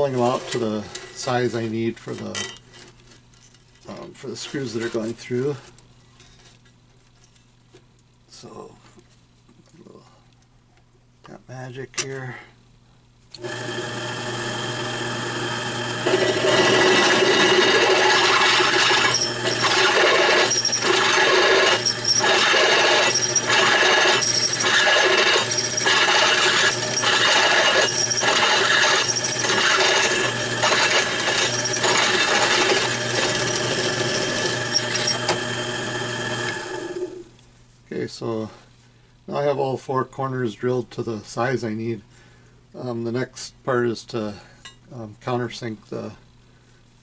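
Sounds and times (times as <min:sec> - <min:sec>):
drill bit scraping steel: 0:13.4 - 0:37.2
drill press motor hum: 0:13.4 - 0:37.4.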